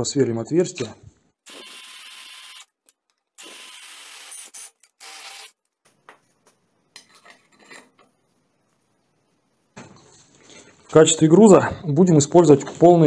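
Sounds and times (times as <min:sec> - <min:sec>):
cordless drill grinding through metal: 0:01.5 - 0:02.7, 0:03.4 - 0:05.6.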